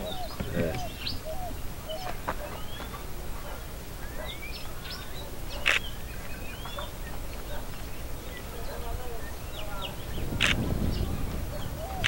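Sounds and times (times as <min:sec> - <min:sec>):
birds chirping and whistling: 0:00.0 - 0:12.0.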